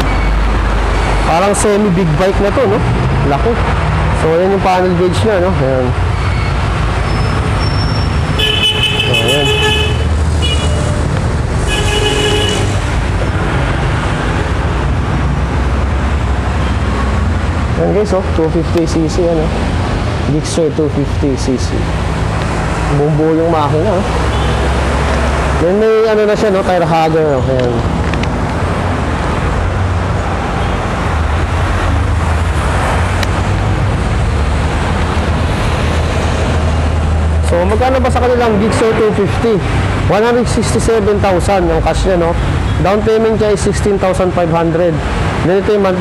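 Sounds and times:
engines droning: 0:00.0 - 0:46.0
highway traffic rumble: 0:00.0 - 0:46.0
road noise hiss: 0:00.0 - 0:46.0
vehicle horn: 0:08.4 - 0:11.0, 0:11.6 - 0:12.8.

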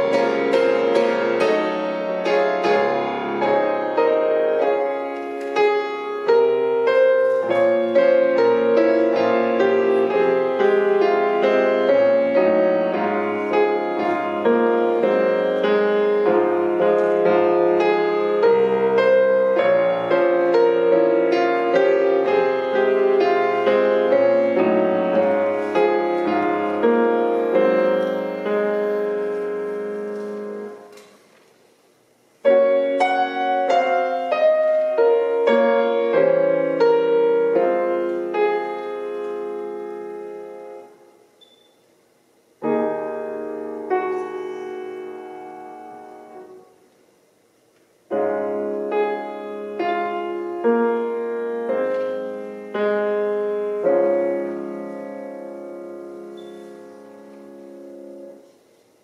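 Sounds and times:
solo grand piano: 0:00.0 - 0:59.0.

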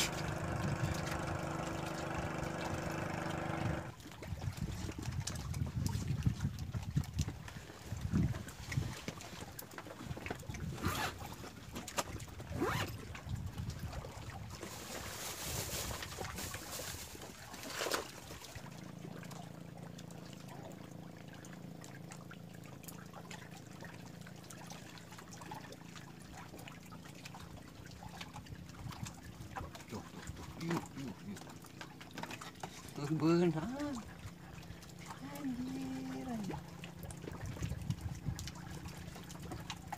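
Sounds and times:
steady low hum: 0:00.0 - 0:04.0
water lapping and splashing: 0:00.0 - 0:39.9.

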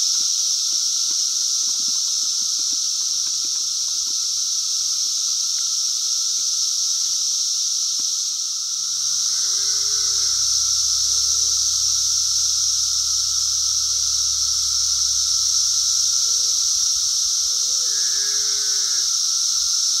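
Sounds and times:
cicadas droning: 0:00.0 - 0:20.0
cow mooing: 0:09.0 - 0:19.1.

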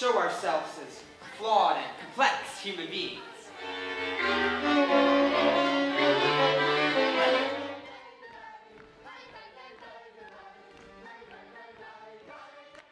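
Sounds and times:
lively violin-led band music: 0:03.5 - 0:07.8.

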